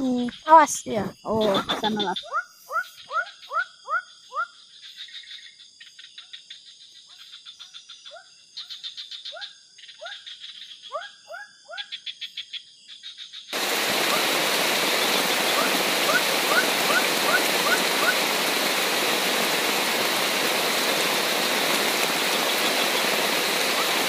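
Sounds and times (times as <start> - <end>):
frogs calling: 0.0 - 24.0
high insect drone: 0.0 - 24.0
rapid insect trilling: 0.0 - 24.0
rushing water: 13.6 - 24.0.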